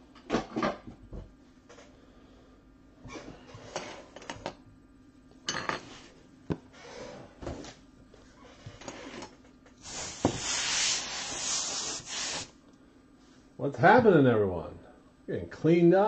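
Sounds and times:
objects clattering on a desk: 0.2s - 1.9s, 5.4s - 6.7s
loud steady hiss: 9.8s - 12.5s.

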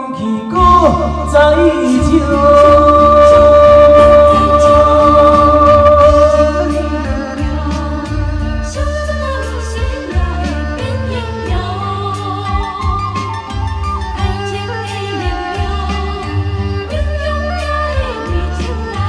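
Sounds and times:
man singing into microphone: 0.0s - 7.5s
backing music: 0.0s - 19.0s.

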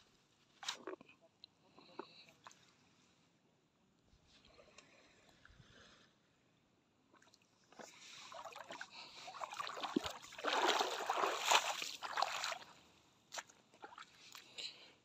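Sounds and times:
seawater splashing: 8.2s - 12.7s.

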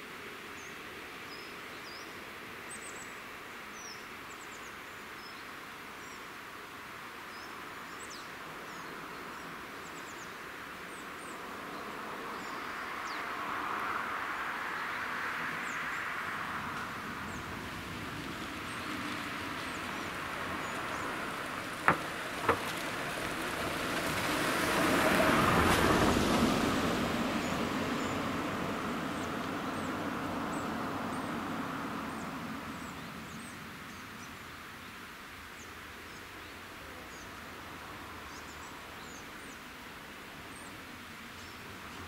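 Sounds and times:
car driving past: 12.2s - 33.6s.

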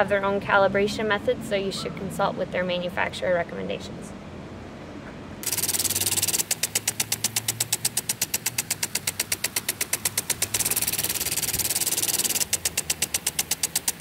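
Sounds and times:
rapid even ticking: 5.4s - 14.0s.

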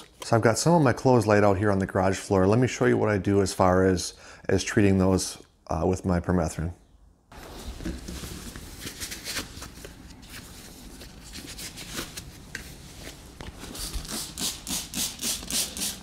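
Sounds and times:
handling and rustling: 7.3s - 14.1s
spray bottle hisses: 13.8s - 16.0s.

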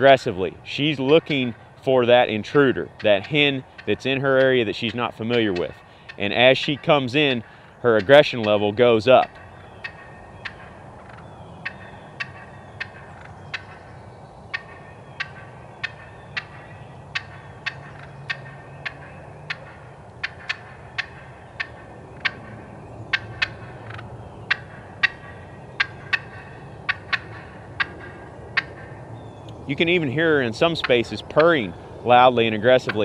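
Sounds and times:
turkey hen clucking: 0.0s - 33.0s.

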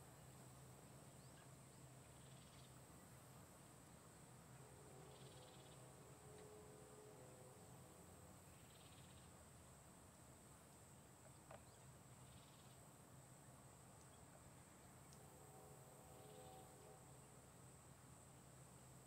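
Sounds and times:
faint background hiss: 0.0s - 19.0s
small tick: 14.0s - 14.2s, 15.0s - 15.3s.

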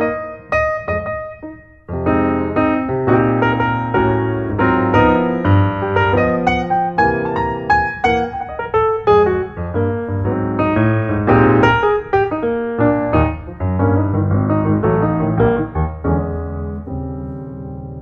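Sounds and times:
piano music: 0.0s - 18.0s.

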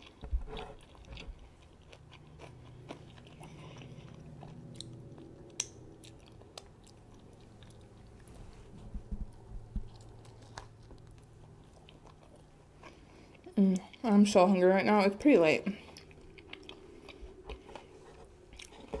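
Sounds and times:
close chewing and mouth smacks: 0.0s - 14.1s, 15.8s - 19.0s
low hum: 0.1s - 14.0s.

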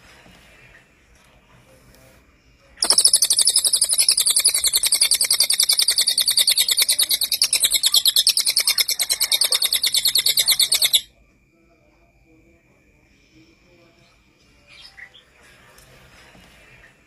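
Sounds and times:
bird singing rapid high notes: 2.8s - 11.1s.

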